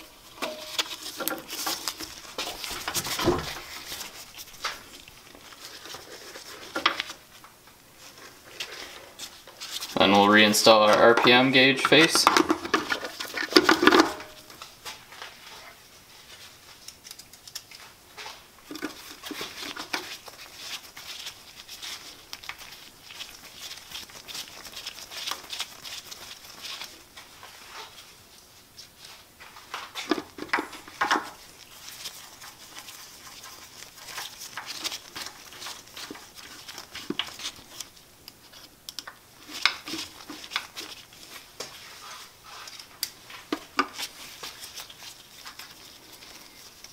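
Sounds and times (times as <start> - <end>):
small parts clicking and tapping: 16.8 - 17.9, 34.1 - 41.0.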